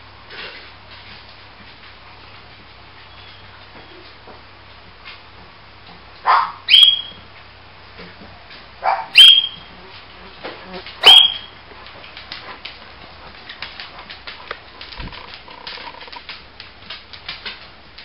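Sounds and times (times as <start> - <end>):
big dog barking: 6.2 - 6.7, 8.8 - 9.4, 11.0 - 11.5.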